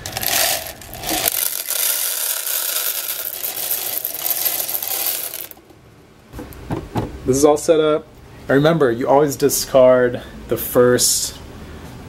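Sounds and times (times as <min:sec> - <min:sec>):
coffee beans pouring into hopper: 0:00.0 - 0:05.6.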